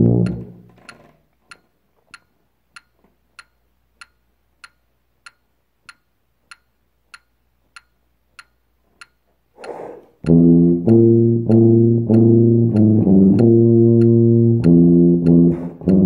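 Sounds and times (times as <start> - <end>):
metronome clicking: 0.0 - 16.0
short breathy rush: 9.6 - 10.2.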